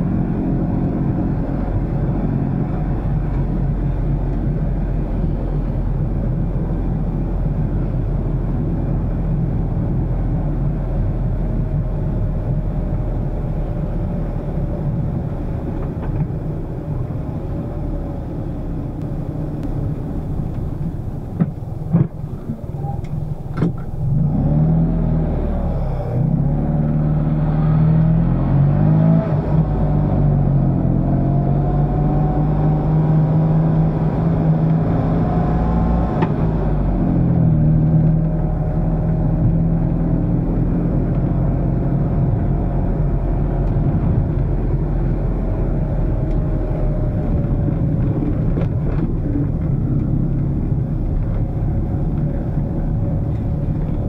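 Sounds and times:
car engine running: 0.0 - 27.3, 33.8 - 54.0.

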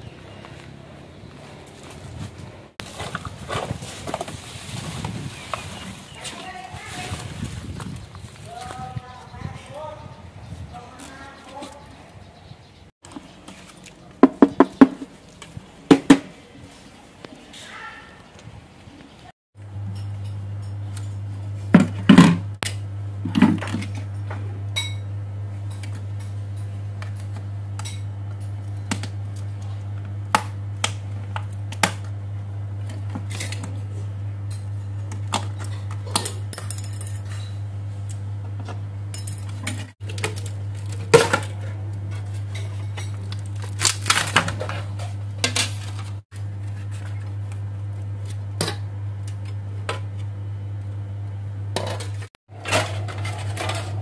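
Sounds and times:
steady low hum: 19.6 - 54.0.

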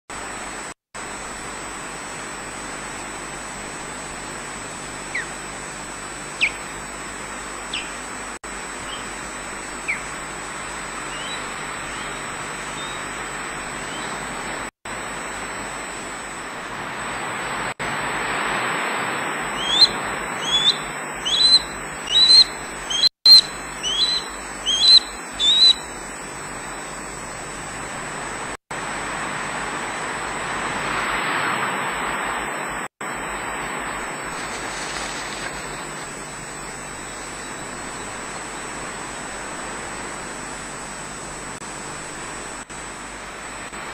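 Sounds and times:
osprey calling: 4.7 - 14.6, 19.5 - 27.0.

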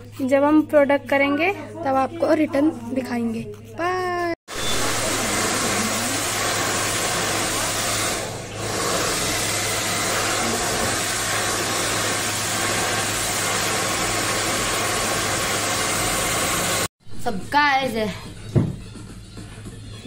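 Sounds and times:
hair dryer blowing: 4.5 - 16.9.

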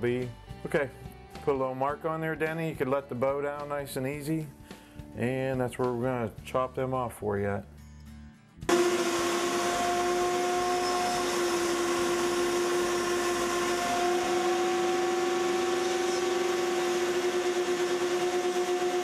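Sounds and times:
cut-off saw whining: 8.7 - 19.0.

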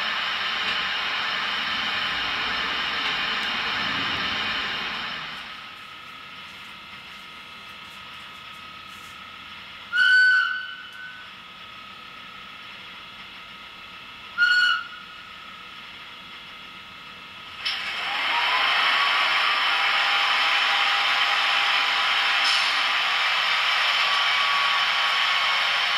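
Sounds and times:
faint rising whine: 0.0 - 5.8
loud steady hiss: 17.5 - 25.9.

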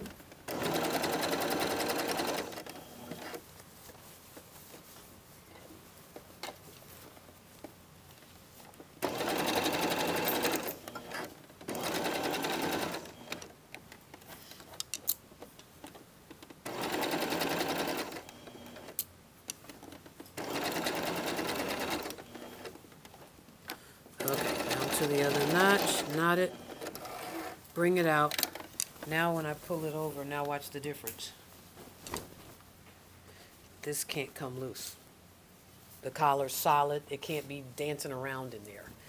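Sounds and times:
sewing machine zigzag stitching: 0.5 - 3.4, 9.0 - 13.5, 16.6 - 19.0, 20.4 - 22.8, 24.2 - 27.6.

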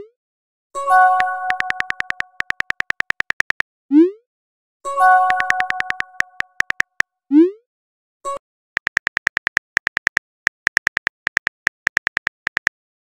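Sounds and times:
message chime: 1.0 - 2.3, 5.0 - 6.5
keyboard key clicks: 1.2 - 3.6, 5.2 - 7.0, 8.8 - 12.8.

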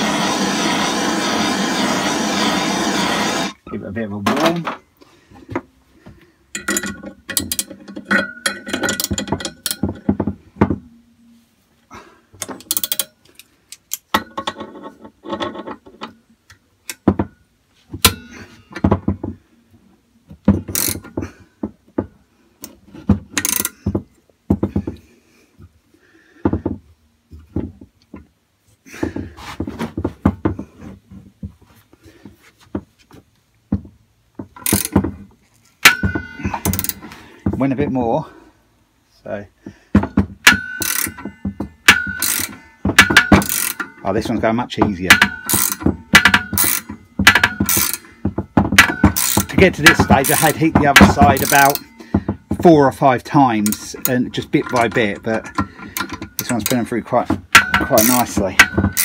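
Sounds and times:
socket ratchet clicking: 40.5 - 41.2, 41.8 - 44.0, 45.1 - 48.1, 48.8 - 51.9.

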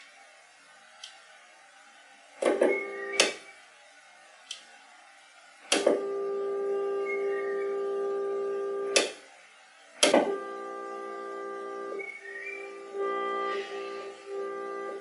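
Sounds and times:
steady test tone through amp: 0.0 - 15.0
switch clicks: 8.9 - 9.2.

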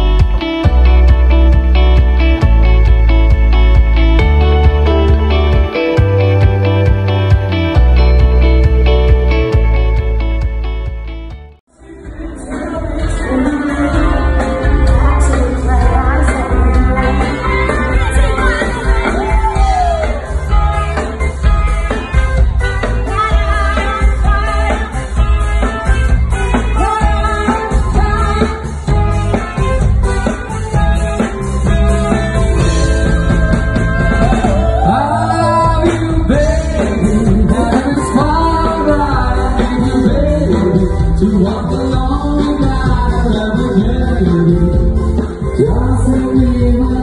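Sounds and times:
song with heavy bass: 0.0 - 47.0
person singing: 11.7 - 21.2, 32.6 - 47.0.

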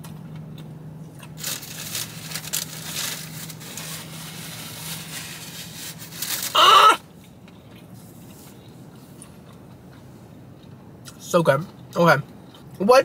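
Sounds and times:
steady low hum: 0.0 - 13.0
paper napkin rustling: 1.4 - 6.6.

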